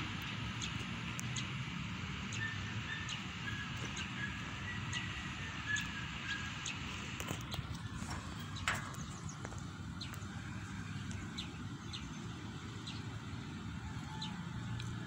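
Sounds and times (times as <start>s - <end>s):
steady low rumble: 6.6s - 15.0s.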